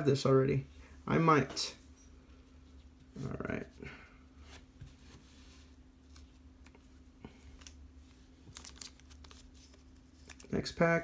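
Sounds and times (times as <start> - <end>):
cards and foil pack rustling: 7.4 - 10.8.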